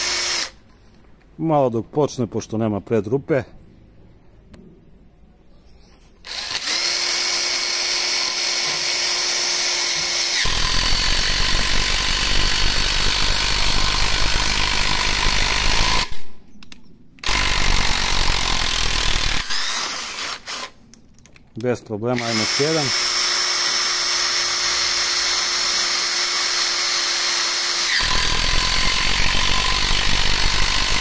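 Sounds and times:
impact driver whining and hammering: 0.0s - 0.5s, 6.2s - 16.2s, 17.2s - 20.7s, 22.2s - 31.0s.

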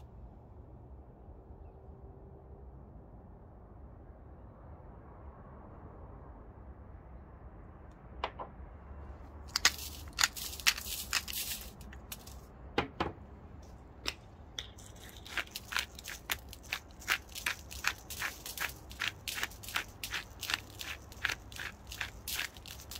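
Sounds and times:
hand mill grinding: 9.5s - 12.4s, 14.8s - 22.9s.

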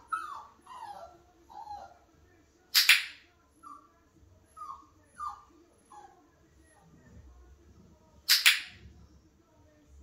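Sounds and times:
puppy whimpering: 0.0s - 2.0s, 3.6s - 6.3s.

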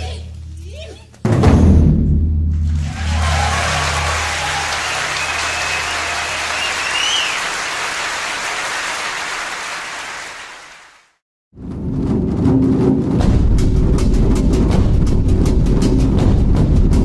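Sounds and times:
crowd clapping and cheering: 2.6s - 11.2s
high shouts or whistles: 4.3s - 7.6s.

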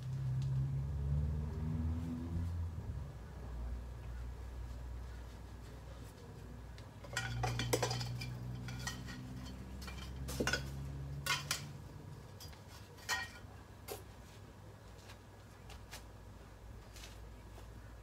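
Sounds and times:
metallic objects clinking: 7.0s - 13.5s.

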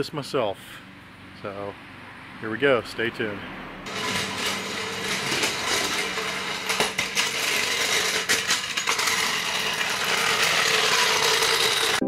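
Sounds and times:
floor jack wheels rolling on asphalt: 3.8s - 12.0s
metal clanks: 3.9s - 12.0s.

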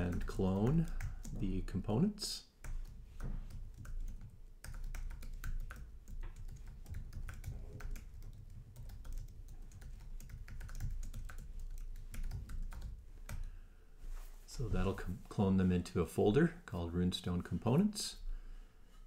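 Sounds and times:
keyboard typing: 0.0s - 1.7s, 2.6s - 13.5s.

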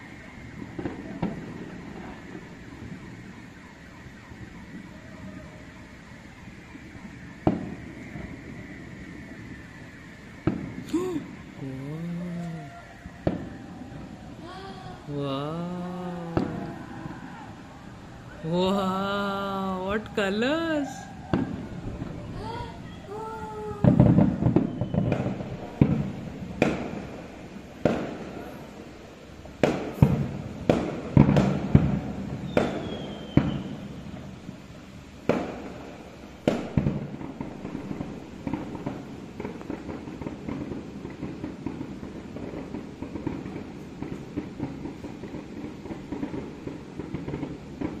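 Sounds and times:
firework crackle: 0.0s - 48.0s
firework shells bursting: 21.3s - 28.8s, 29.5s - 34.3s, 35.2s - 48.0s.

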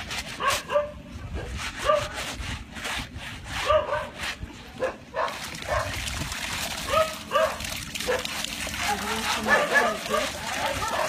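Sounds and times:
clothes scrubbed on concrete: 0.0s - 11.0s
dog yelping: 3.6s - 4.1s, 6.9s - 11.0s.

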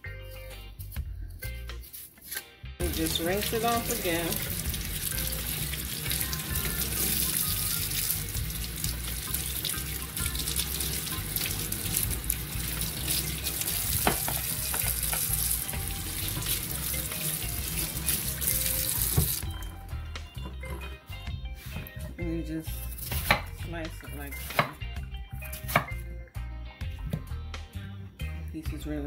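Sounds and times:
tap water splashing into sink: 2.8s - 19.6s.

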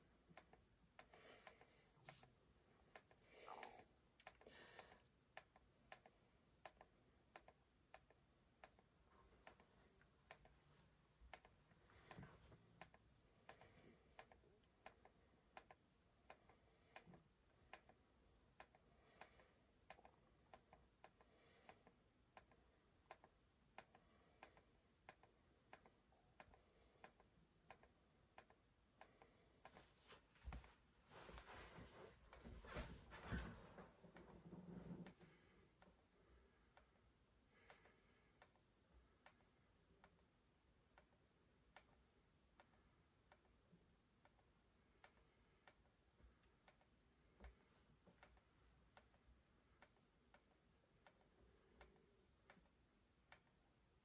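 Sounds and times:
soft rustles: 1.4s - 2.4s, 29.2s - 35.6s.

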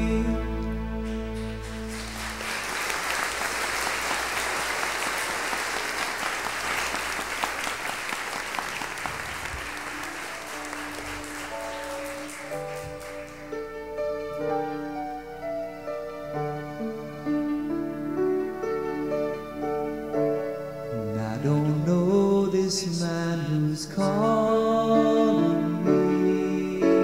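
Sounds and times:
held music chord: 0.0s - 2.7s
soft sustained music notes: 0.0s - 2.7s
audience applauding: 1.4s - 13.8s.

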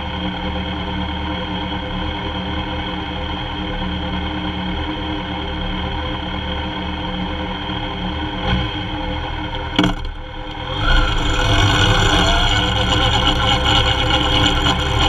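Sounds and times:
motorcycle engine: 8.0s - 15.0s.

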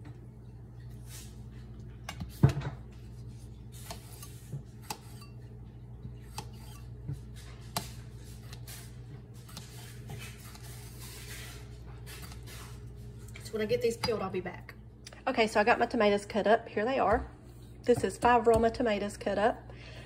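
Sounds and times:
knife cutting tomatoes: 3.0s - 5.4s, 6.0s - 12.9s.

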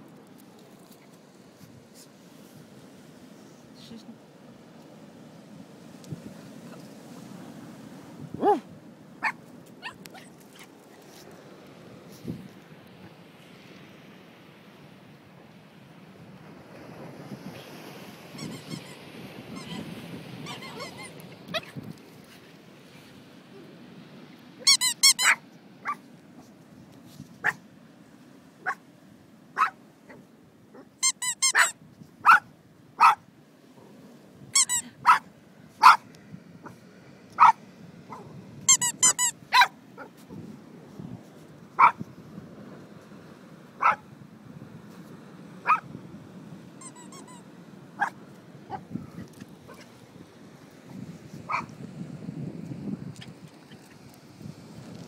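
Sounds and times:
dog barking: 8.4s - 8.6s, 25.2s - 26.0s, 29.6s - 30.2s, 31.6s - 33.2s, 35.0s - 36.1s, 37.4s - 38.3s, 39.5s - 40.1s, 41.8s - 42.0s, 43.8s - 44.0s, 45.6s - 45.8s, 48.0s - 48.8s, 51.5s - 51.7s
dog yelping: 8.4s - 8.6s, 9.2s - 10.7s, 20.5s - 21.8s, 24.7s - 26.0s, 29.6s - 30.2s, 30.8s - 33.2s, 34.6s - 36.0s, 37.4s - 40.1s, 51.5s - 51.7s.

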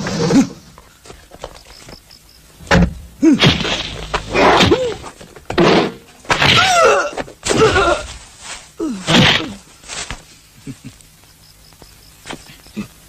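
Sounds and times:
blows and thuds: 2.6s - 6.7s.

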